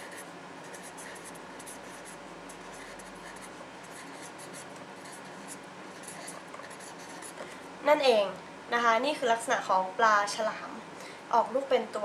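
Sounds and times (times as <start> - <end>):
pen scratching on paper: 0.0 - 7.5.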